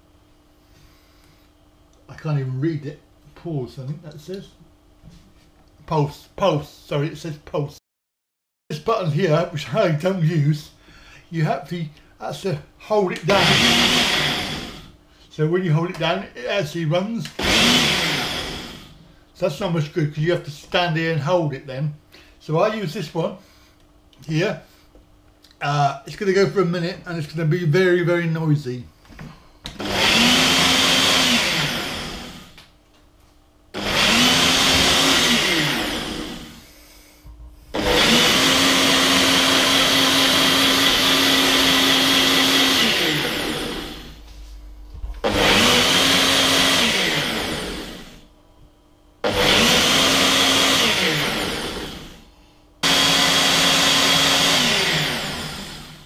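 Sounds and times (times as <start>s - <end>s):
blender motor running: 13.2s - 15.0s, 17.2s - 19.0s, 29.7s - 32.7s, 33.8s - 36.8s, 37.7s - 44.3s, 45.2s - 48.3s, 49.2s - 56.0s.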